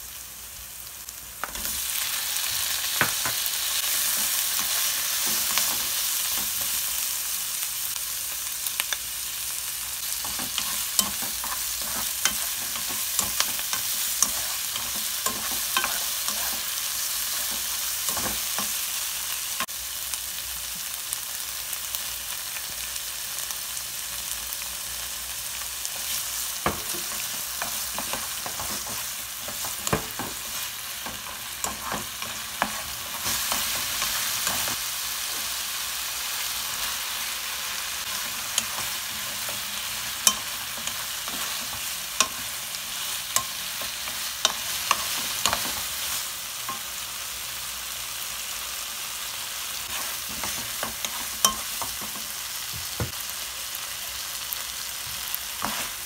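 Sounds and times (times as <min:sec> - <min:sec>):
food sizzling in a frying pan: 0:00.0 - 0:56.0
spatula tapping and scraping pan: 0:10.2 - 0:18.8, 0:26.6 - 0:34.8, 0:38.2 - 0:42.6, 0:43.3 - 0:46.0, 0:49.9 - 0:53.2.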